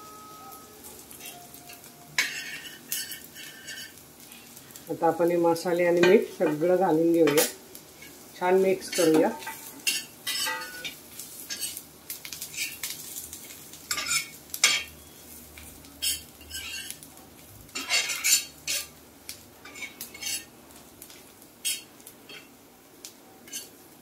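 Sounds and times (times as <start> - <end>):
metal spatula scraping iron pan: 2.2 - 4.0, 8.8 - 11.8, 16.0 - 17.0, 17.8 - 18.9, 19.6 - 20.5, 23.5 - 23.8.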